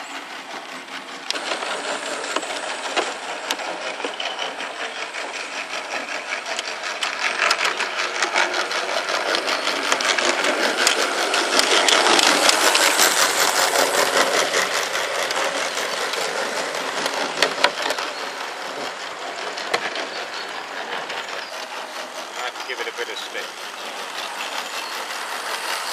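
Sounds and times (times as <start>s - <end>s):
model train rattling: 0.0s - 25.9s
model train wheels clicking: 0.0s - 25.9s.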